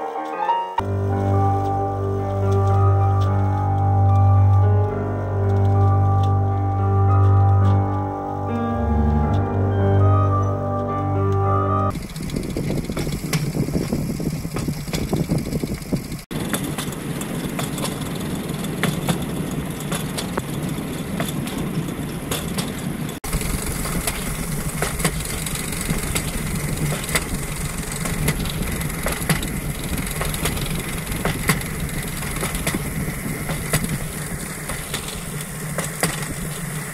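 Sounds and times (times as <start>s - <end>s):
low hum: 0.8s - 21.1s, 23.2s - 36.9s
sharp track clicks: 11.9s - 36.9s
train rumbling on railroad track: 11.9s - 36.9s.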